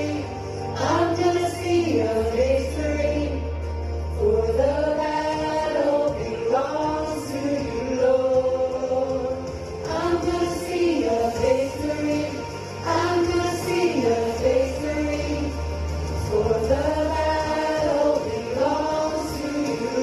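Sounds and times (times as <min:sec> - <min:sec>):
voices singing slow melody: 0:00.0 - 0:20.0.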